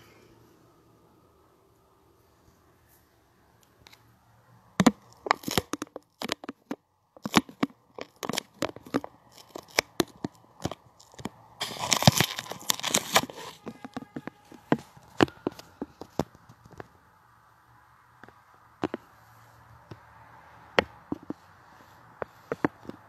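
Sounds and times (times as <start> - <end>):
rubbing on microphone: 7.2 - 16.6.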